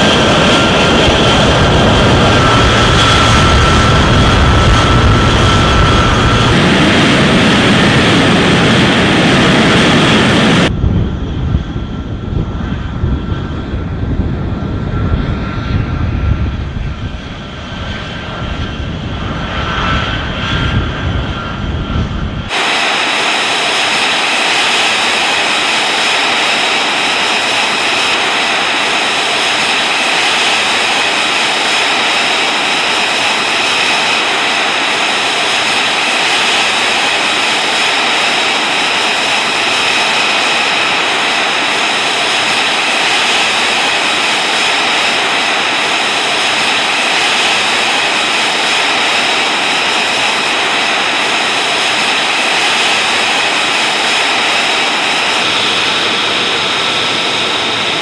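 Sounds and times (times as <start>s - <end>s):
low rumble: 0.0s - 24.6s
jet engine whine and hiss: 0.0s - 58.0s.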